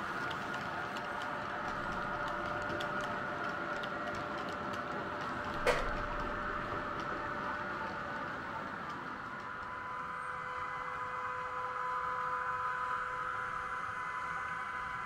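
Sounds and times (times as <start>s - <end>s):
wheels ticking over track: 0.0s - 9.9s
model train humming: 0.0s - 15.0s.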